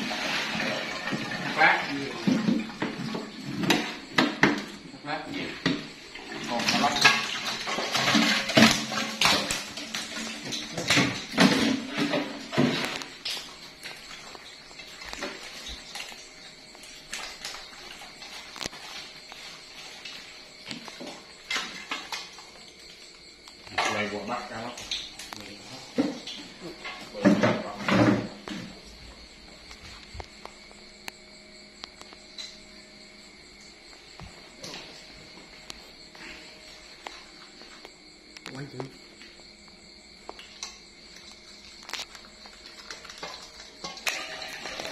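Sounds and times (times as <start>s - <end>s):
crickets chirring: 0.0s - 44.9s
fish thrashing on tile floor: 5.4s - 30.6s, 39.7s - 44.9s
fish clattering on metal: 5.7s - 16.2s, 42.9s - 44.9s.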